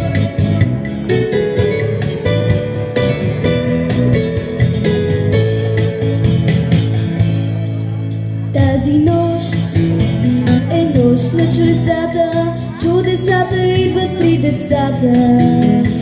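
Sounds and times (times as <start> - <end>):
christmas pop backing music: 0.0 - 16.0
girl singing into microphone: 8.5 - 16.0.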